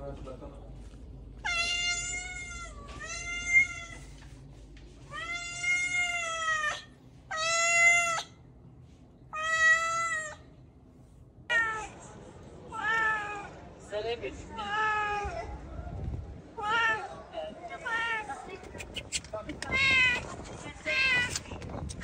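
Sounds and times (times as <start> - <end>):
cat meowing: 1.4 - 4.1, 5.1 - 8.4, 9.4 - 10.5, 11.5 - 11.9, 17.9 - 20.2.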